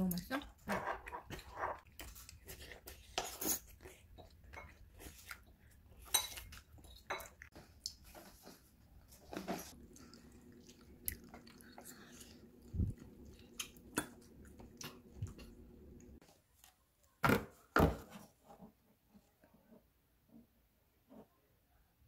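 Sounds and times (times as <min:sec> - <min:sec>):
chewing: 0:00.2 - 0:16.2
low room hum: 0:07.6 - 0:16.2.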